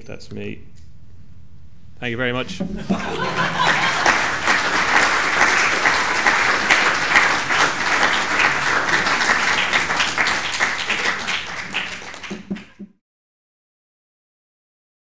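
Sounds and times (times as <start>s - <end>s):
audience applauding: 2.8s - 12.8s.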